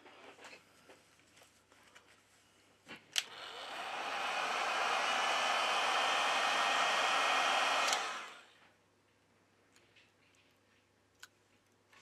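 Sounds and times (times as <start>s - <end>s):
heat gun blowing hot air: 3.2s - 8.6s.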